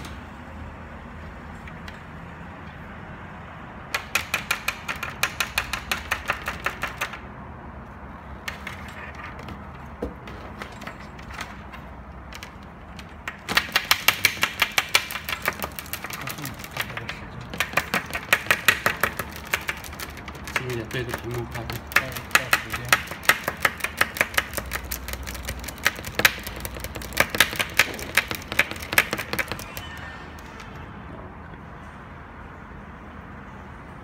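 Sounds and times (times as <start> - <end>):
device knocking against tabletop: 13.3 - 29.7.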